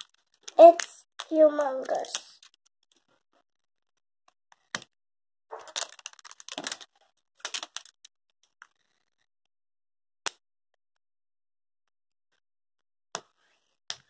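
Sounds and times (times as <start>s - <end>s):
wrapper crinkling and rustling: 0.0s - 2.5s, 5.5s - 8.0s.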